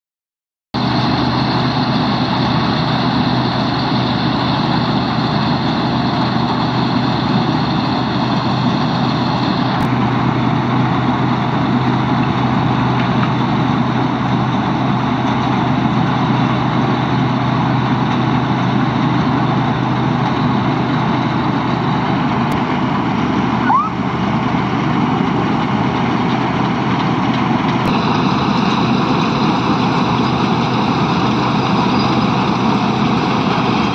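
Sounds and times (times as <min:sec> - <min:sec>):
combine harvester engine drone: 0:00.8 - 0:33.9.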